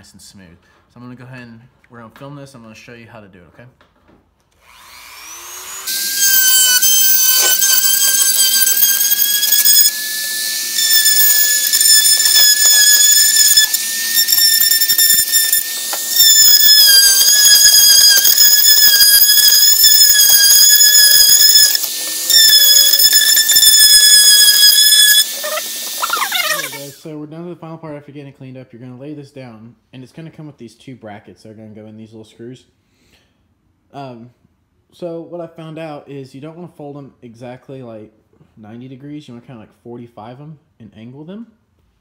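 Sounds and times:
rotary tool grinding plastic: 5.4 - 27.0.

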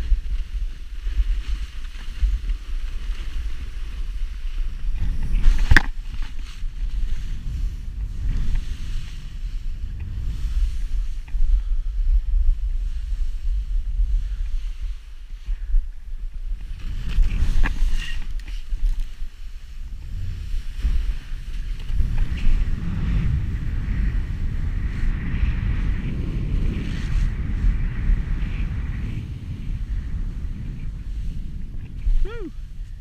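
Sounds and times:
snowboard sliding through snow: 0.0 - 33.0
wind buffeting microphone: 0.0 - 33.0.

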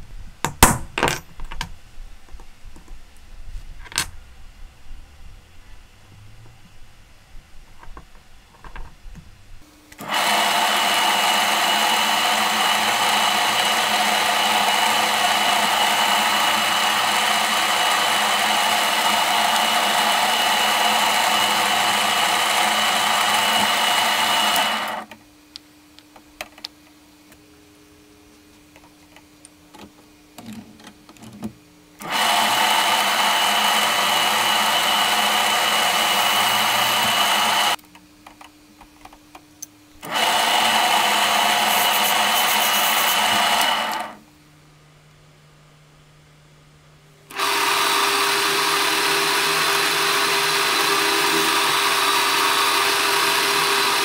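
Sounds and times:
drill press whining: 9.9 - 25.2, 32.0 - 37.8, 40.0 - 44.2, 47.3 - 54.0.

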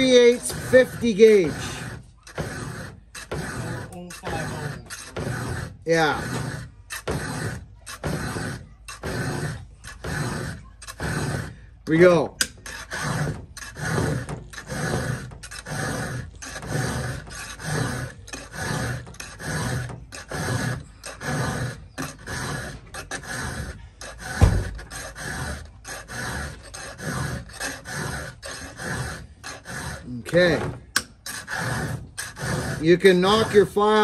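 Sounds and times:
file rasping on saw chain: 0.0 - 34.0
dull thump: 24.2 - 24.9.

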